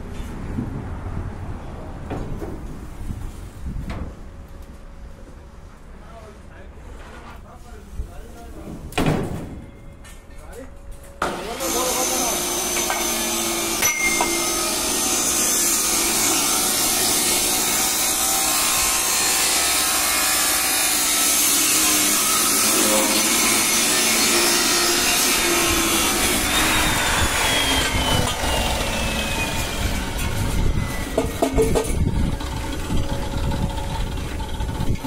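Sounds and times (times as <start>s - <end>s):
cut-off saw grinding pipe: 11.2s - 35.0s
thin falling whine: 13.8s - 14.9s, 24.9s - 35.0s.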